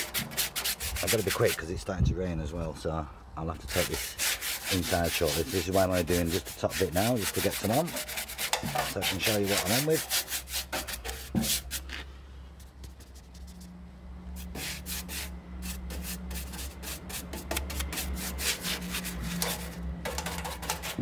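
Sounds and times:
paintbrush scrubbing on metal: 0.0 - 1.6, 3.7 - 12.0, 12.6 - 13.7, 14.3 - 21.0
steady low hum: 10.9 - 21.0.

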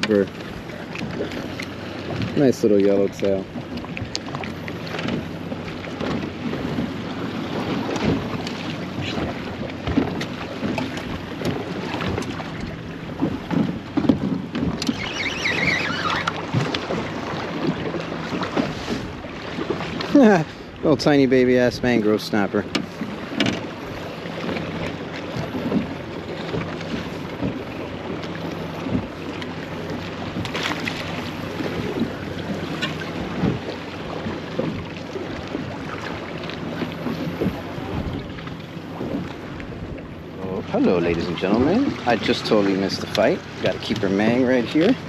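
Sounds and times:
water slapping boat hull: 0.0 - 45.0
wind buffeting microphone: 0.0 - 45.0
wavering high whistle: 14.9 - 16.3.

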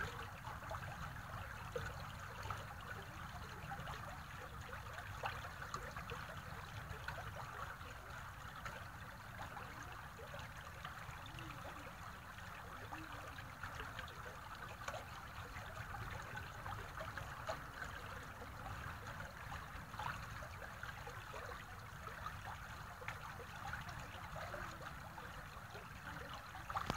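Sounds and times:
stream trickling over pebbles: 0.0 - 26.9.

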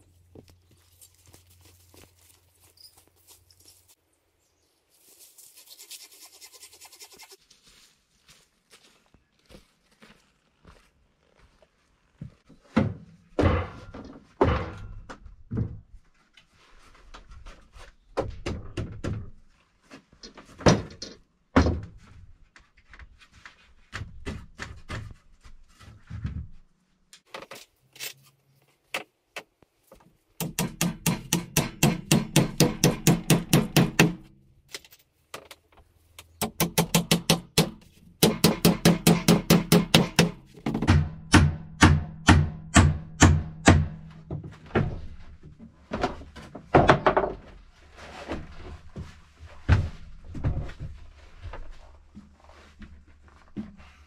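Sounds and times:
fast even hand strokes on wood: 5.0 - 7.4
wooden knocks and thunks: 12.5 - 16.0, 18.1 - 19.4, 20.3 - 22.2, 36.4 - 41.6, 43.2 - 51.7.

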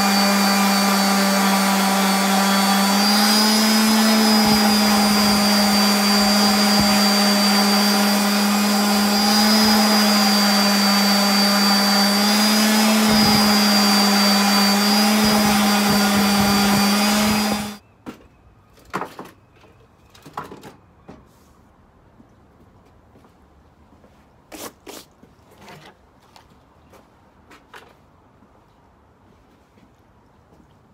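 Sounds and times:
orbital sander running: 0.0 - 17.8.

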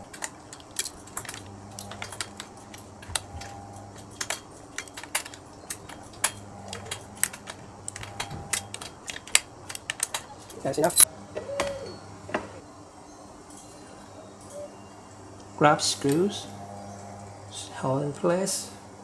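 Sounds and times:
small screws and washers handled: 0.0 - 11.0
hex key turning in screws: 0.0 - 11.1.

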